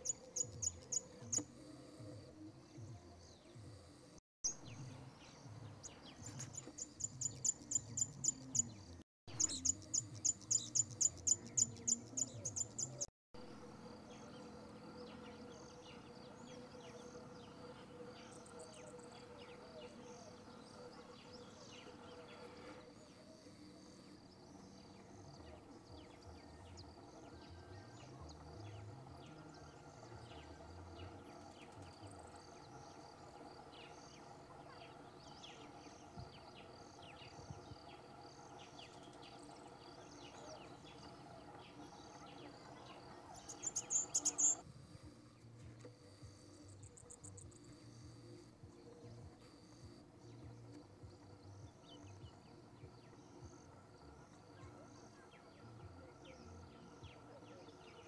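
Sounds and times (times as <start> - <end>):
insects chirping: 35.9 - 45.1, 45.9 - 57.4.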